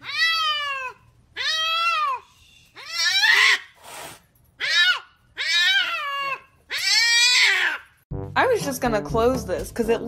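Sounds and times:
cat meowing: 0.0s - 2.2s, 4.6s - 7.8s.

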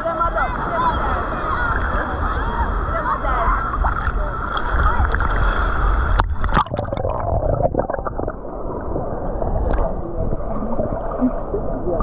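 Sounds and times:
sea water sloshing and splashing: 3.6s - 12.0s.

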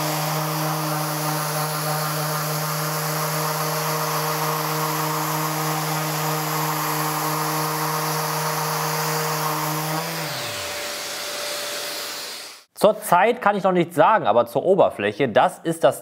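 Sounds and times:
dust extractor hiss: 0.0s - 12.7s
orbital sander on wood: 0.0s - 12.7s.

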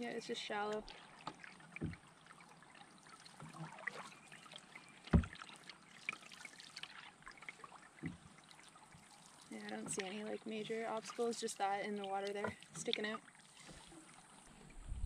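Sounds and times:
paddle splashing water: 0.0s - 15.0s
dull thump: 5.1s - 5.4s.

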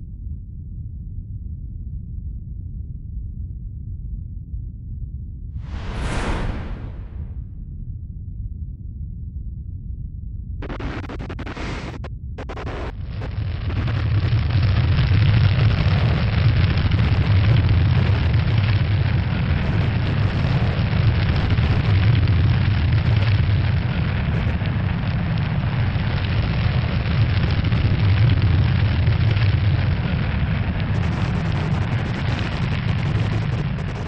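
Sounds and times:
rumble with rushing hiss: 5.6s - 7.7s, 10.6s - 34.0s.

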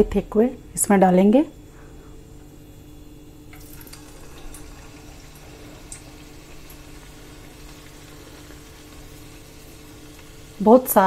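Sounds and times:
dough sizzling in hot oil: 3.5s - 11.0s.

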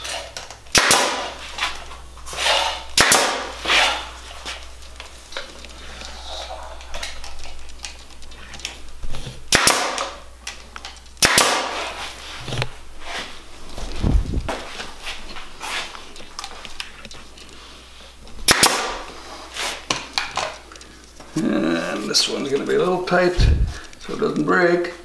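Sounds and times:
nail gun firing: 0.7s - 1.3s, 3.0s - 3.6s, 9.5s - 10.2s, 11.2s - 11.8s, 18.5s - 19.0s.

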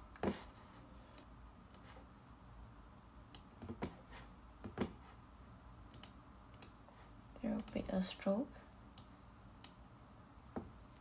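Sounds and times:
low room hiss: 0.0s - 11.0s
computer mouse clicks: 3.3s - 3.5s, 5.9s - 6.8s, 7.6s - 7.9s, 8.9s - 9.8s.

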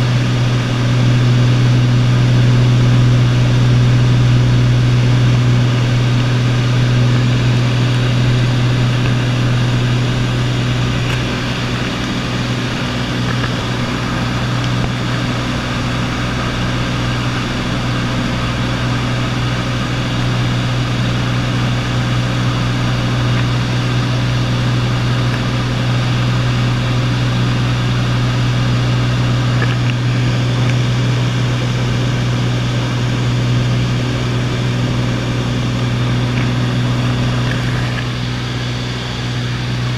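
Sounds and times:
propeller engine droning: 0.0s - 39.9s.

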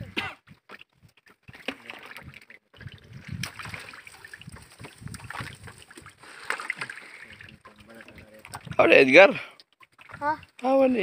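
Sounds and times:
fishing net rustling: 3.4s - 7.5s.

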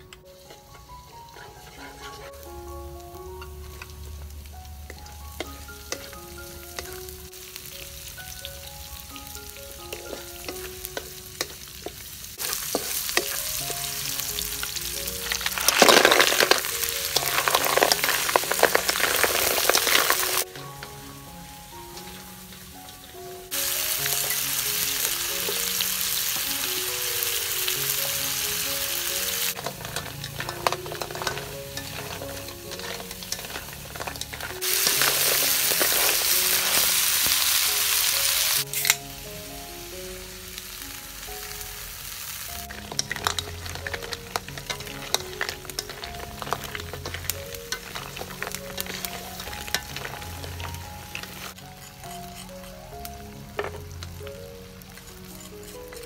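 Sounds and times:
wooden spatula scraping wok: 0.0s - 3.9s, 9.9s - 21.0s, 29.1s - 37.6s, 42.7s - 56.0s
snails sizzling in a wok: 0.0s - 56.0s.

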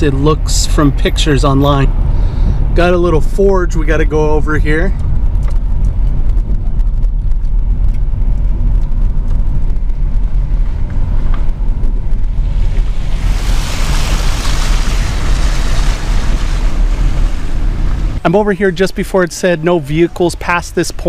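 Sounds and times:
car cabin low rumble: 0.0s - 21.0s
water spray splashing: 12.4s - 18.2s.

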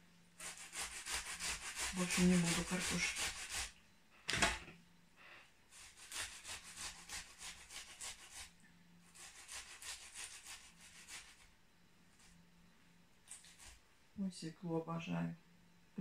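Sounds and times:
beetroot grated on metal grater: 0.4s - 3.7s.

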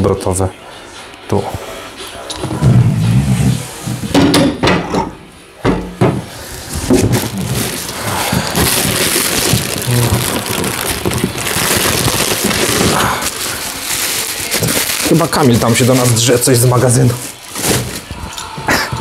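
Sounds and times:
bubble wrap and bags rustling: 6.4s - 19.0s.

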